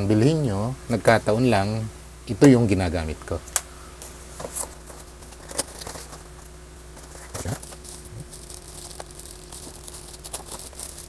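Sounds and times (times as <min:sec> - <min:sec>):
faint steady hum: 0:00.0 - 0:11.0
plastic wrapping crinkling: 0:07.0 - 0:11.0.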